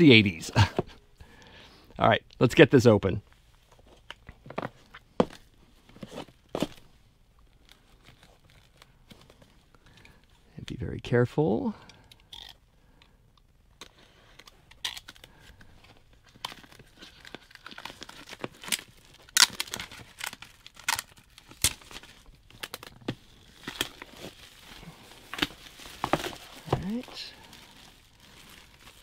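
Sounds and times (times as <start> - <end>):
plastic shrink wrap tearing: 16.2 - 29.0.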